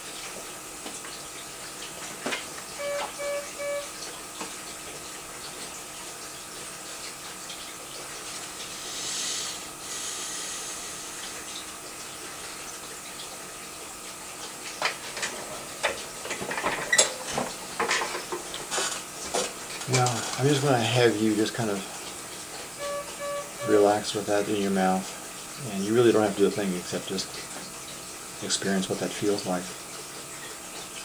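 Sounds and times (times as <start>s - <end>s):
faint constant tone: 2.3s - 4.1s, 22.8s - 27.0s
short electronic beeps: 2.8s - 4.0s, 22.8s - 24.0s
steady hiss: 8.8s - 11.2s.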